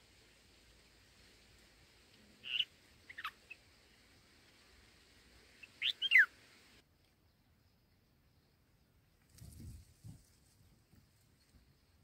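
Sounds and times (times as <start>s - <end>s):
birds calling: 2.4s - 3.7s, 5.6s - 6.4s.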